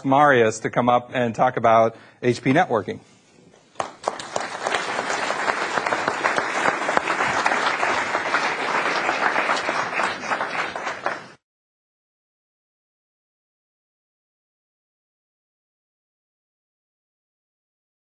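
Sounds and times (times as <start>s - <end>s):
large audience applauding: 3.7s - 11.4s.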